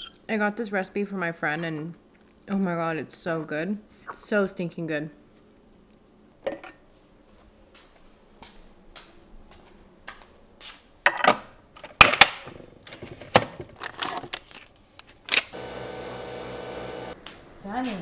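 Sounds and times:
coffee machine motor humming: 15.6s - 17.2s.

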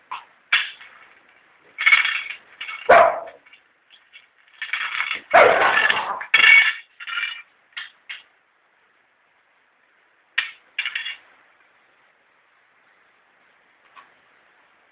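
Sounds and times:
dog barking and growling: 2.9s - 3.4s, 5.3s - 5.8s.

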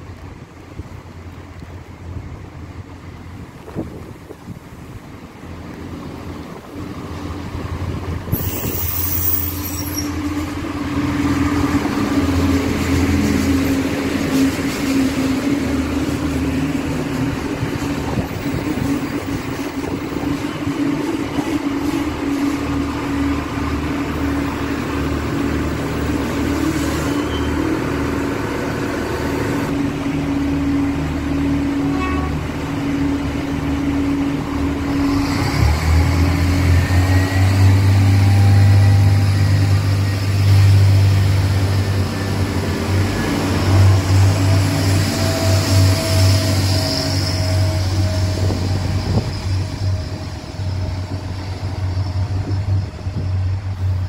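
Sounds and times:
diesel train engines humming: 0.0s - 54.0s.

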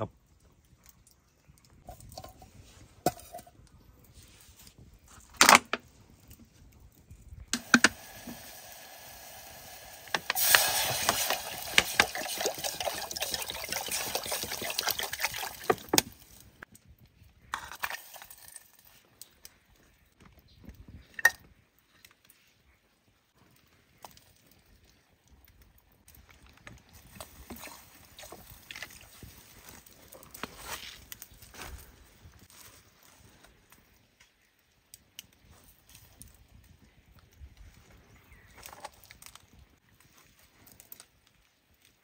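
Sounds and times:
water pouring into a pot: 7.6s - 16.4s, 17.6s - 19.0s.

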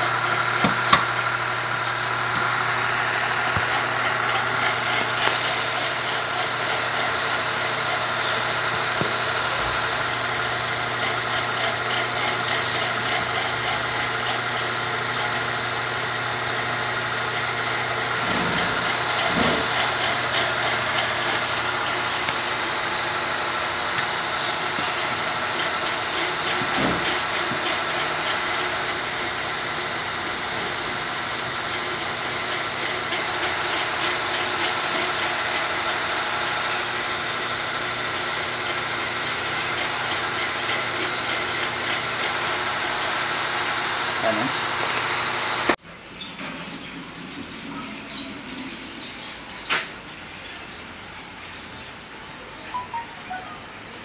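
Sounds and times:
small engine running steadily: 0.0s - 50.4s.

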